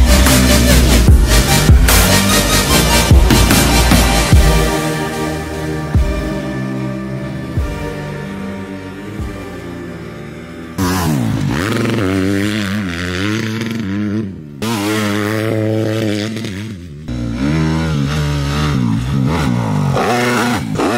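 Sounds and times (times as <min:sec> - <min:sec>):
motocross engine revving: 0:00.0 - 0:20.9.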